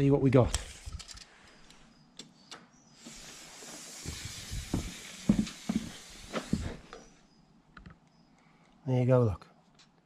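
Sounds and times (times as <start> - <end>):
tape measure hissing: 3.0 - 7.1.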